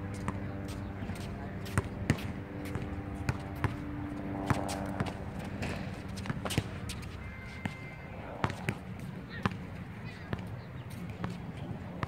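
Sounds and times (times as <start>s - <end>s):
basketball bouncing on hard court: 1.7s - 3.8s.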